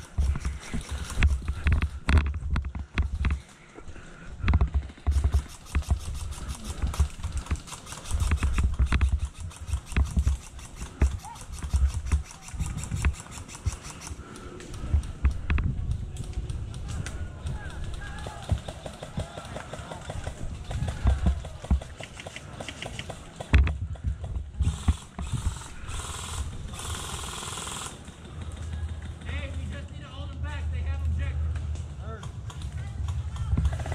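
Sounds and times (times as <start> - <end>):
airsoft gun firing bursts: 0.0 - 2.0, 4.6 - 14.5, 17.6 - 23.6, 24.6 - 28.4, 33.6 - 33.9
rapid clicks: 0.0 - 30.4, 31.0 - 33.9.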